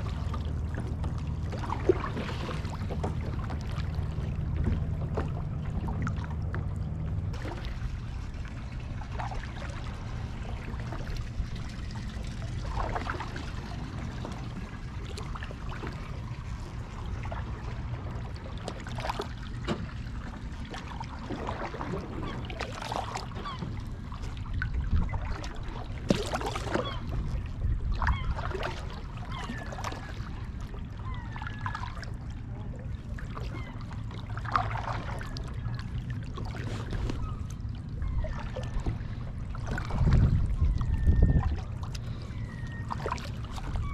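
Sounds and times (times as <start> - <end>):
paddle splashing water: 0.0 - 43.9
low rumble: 32.1 - 43.9.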